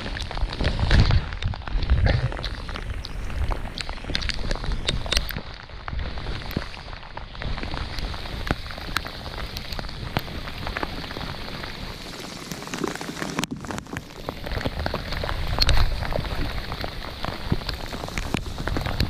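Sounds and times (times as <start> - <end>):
rain falling on water: 0.0 - 19.0.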